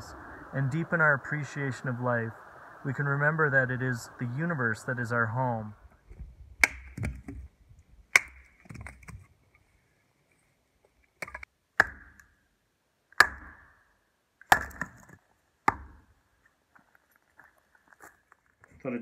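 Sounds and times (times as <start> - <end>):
hatchet chopping wood: 6.6 - 7.4, 8.1 - 9.1, 11.2 - 12.4, 13.2 - 13.8, 14.4 - 16.1.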